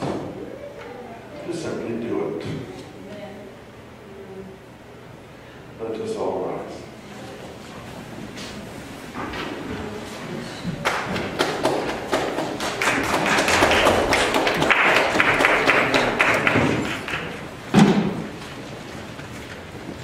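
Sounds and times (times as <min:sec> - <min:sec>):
knocks and taps on wooden pews: 0:10.7 - 0:18.3
feet shuffling: 0:16.6 - 0:20.0.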